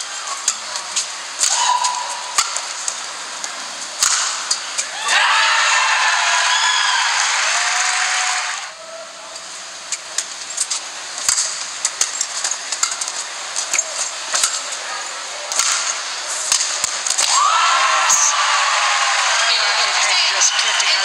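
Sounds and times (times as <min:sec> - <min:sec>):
crowd and hall noise: 0:00.0 - 0:21.0
racket hitting shuttlecock: 0:00.5 - 0:05.0, 0:10.1 - 0:14.7, 0:15.5 - 0:17.4.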